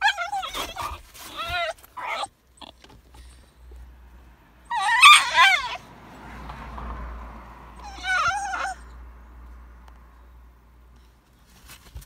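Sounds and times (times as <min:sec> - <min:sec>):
dog whining: 0:00.0 - 0:02.9, 0:04.6 - 0:05.8, 0:07.8 - 0:09.0.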